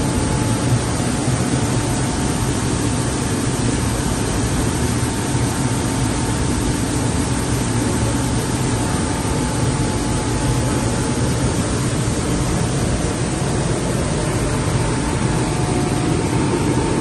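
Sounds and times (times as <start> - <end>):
machine fan drone: 0.0 - 17.0
low hum: 8.8 - 17.0.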